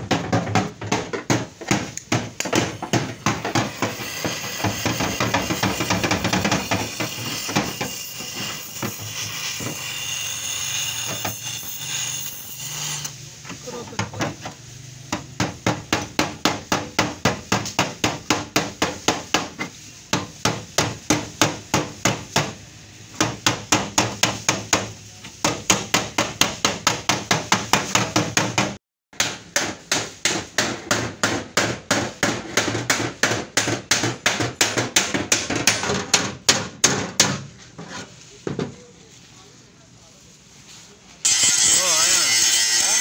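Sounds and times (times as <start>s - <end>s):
hammer striking rusted steel: 0.0s - 12.9s.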